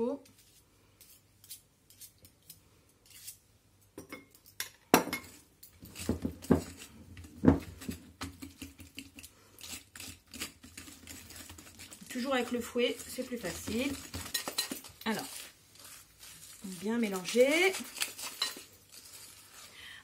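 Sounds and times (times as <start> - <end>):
whisk clinking in glass bowl: 14.0 - 14.9.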